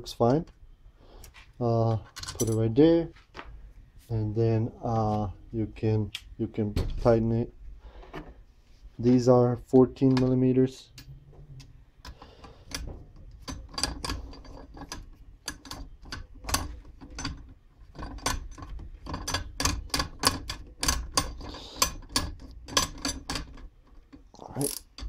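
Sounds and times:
ratchet wrench clicking: 24.5s - 25.0s.

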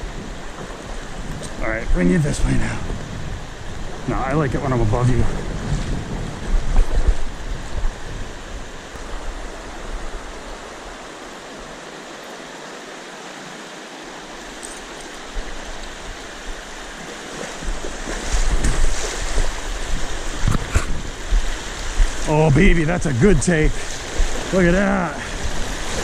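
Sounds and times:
wind buffeting microphone: 0.0s - 11.1s, 15.2s - 26.0s
river rapids rushing over rocks: 6.6s - 26.0s.

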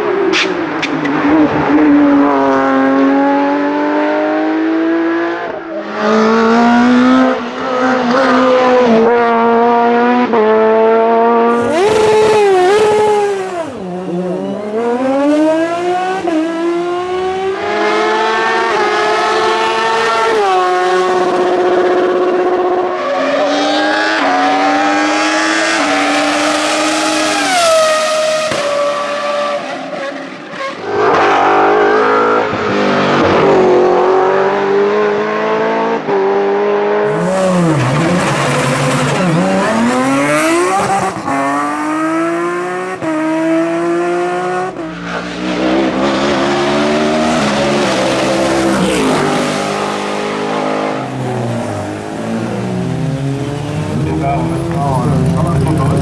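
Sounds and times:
race car engines revving: 0.0s - 56.0s.

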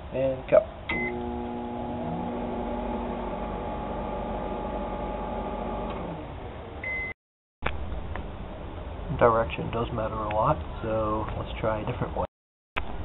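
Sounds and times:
microwave electrical hum: 0.5s - 9.2s
microwave oven beeps: 0.9s - 1.4s, 6.8s - 7.2s.

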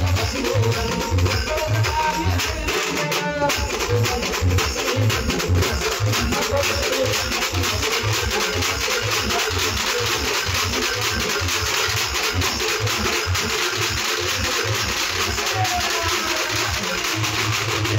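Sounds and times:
distorted live banjo band: 0.0s - 17.9s
drums beating: 0.0s - 17.9s.

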